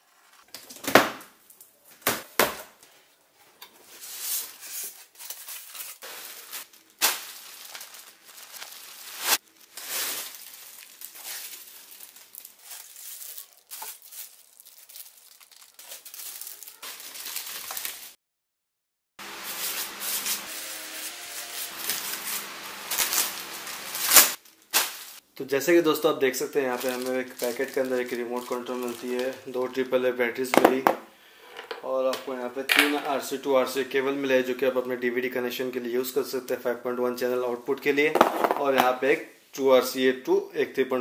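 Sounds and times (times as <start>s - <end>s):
plastic wrap crinkling: 3.8s - 18.2s, 19.2s - 25.2s, 26.2s - 30.1s.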